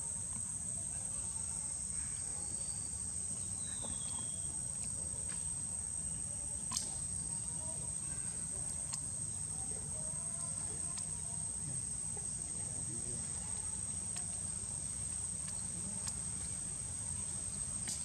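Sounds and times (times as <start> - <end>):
insects droning: 0.0 - 18.0
faint clicks: 8.9 - 9.1, 14.1 - 14.4, 15.4 - 16.6.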